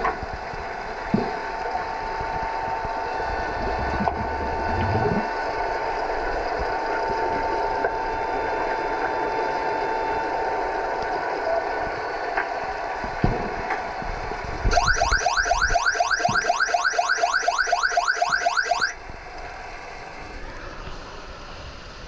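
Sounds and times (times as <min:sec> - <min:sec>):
rising electronic chirps underwater: 0:03.9 - 0:05.4, 0:14.7 - 0:19.0.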